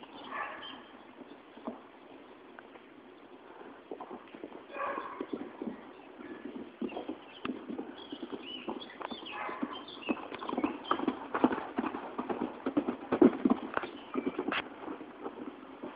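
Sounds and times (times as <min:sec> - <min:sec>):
pony hoofbeats cantering: 0:00.0 - 0:15.9.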